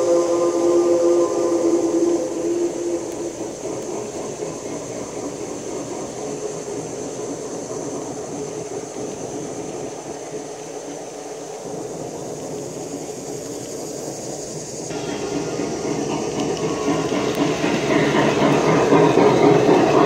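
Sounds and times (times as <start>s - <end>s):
model train wheels clattering: 0.0s - 20.0s.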